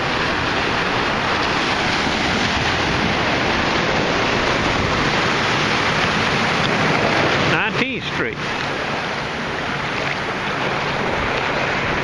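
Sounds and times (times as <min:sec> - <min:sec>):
wind noise on microphone: 0:00.0 - 0:07.6
ocean surf rushing: 0:00.0 - 0:12.0.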